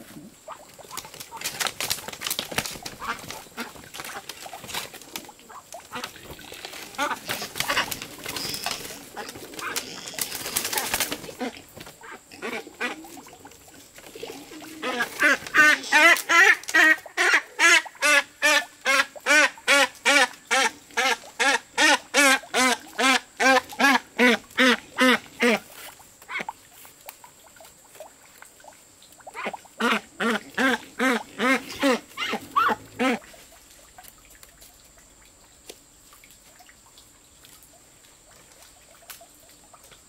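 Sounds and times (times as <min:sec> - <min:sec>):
goose honking: 0:29.4 - 0:33.2.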